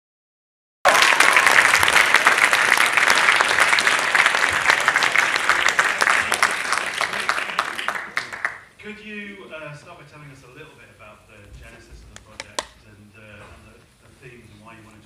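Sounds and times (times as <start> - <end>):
audience applauding: 0.8 - 8.7.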